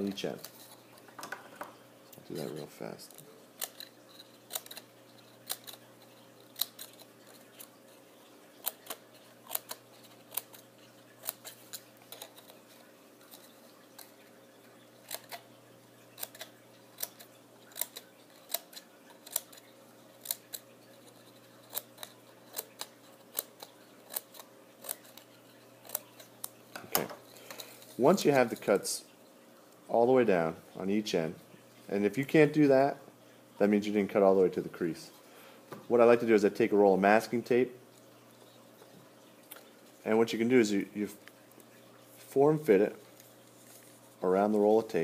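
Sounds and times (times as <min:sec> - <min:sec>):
scissors snipping paper: 0:02.3 - 0:05.9, 0:08.6 - 0:10.6, 0:11.2 - 0:12.6, 0:15.0 - 0:15.4, 0:16.2 - 0:19.6, 0:20.2 - 0:26.6.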